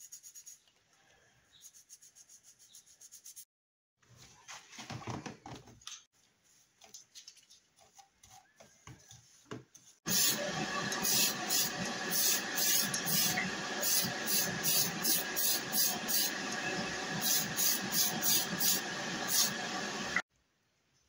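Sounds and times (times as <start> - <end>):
spray paint can hissing: 10.1 - 19.7
extraction fan hum: 10.1 - 20.2.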